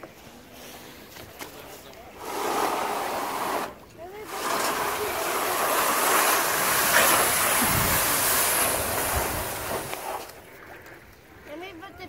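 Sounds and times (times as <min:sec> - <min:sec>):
metal canoe scraping over wet sand: 0:02.1 - 0:10.7.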